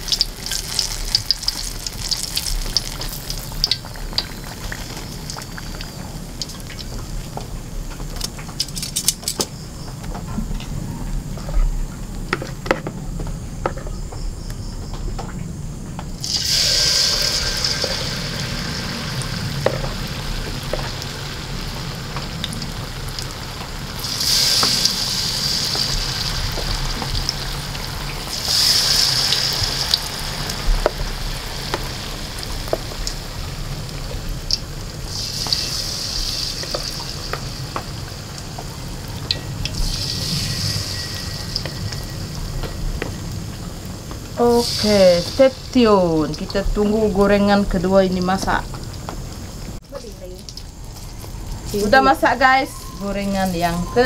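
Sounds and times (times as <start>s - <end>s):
batter deep-frying in hot oil: 0.0s - 10.1s, 16.2s - 54.0s.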